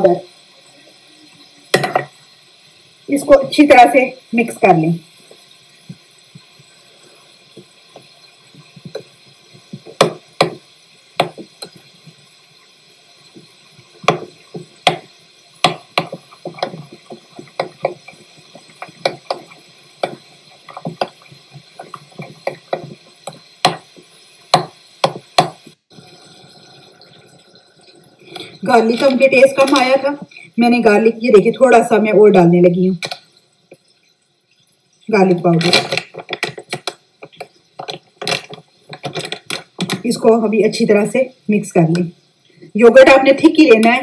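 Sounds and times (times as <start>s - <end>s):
metal spoon stirring thick sauce: 15.7s - 23.9s.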